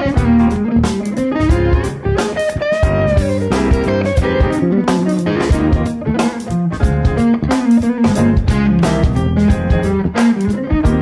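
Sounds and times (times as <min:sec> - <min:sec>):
electric guitar: 0:00.0 - 0:11.0
steady drum beat: 0:00.0 - 0:11.0.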